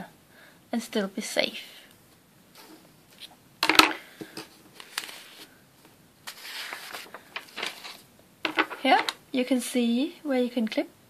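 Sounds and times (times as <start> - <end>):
paper rustling: 4.7 - 5.5, 6.2 - 9.1.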